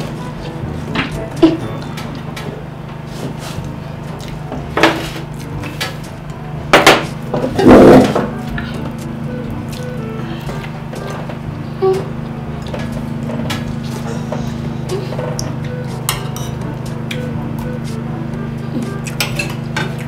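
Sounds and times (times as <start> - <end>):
steady low hum: 0.0 - 20.0
cutlery clinking on plates: 19.1 - 20.0.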